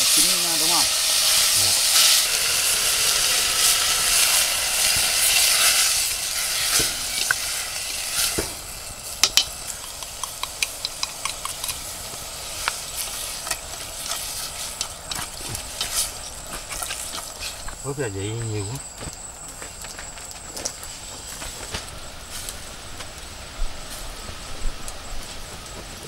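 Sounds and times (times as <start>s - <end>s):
seasoning scraped and stirred: 0.0s - 17.9s
food sizzling in a pot: 0.0s - 26.0s
chopsticks tapping a metal pot: 9.2s - 11.8s.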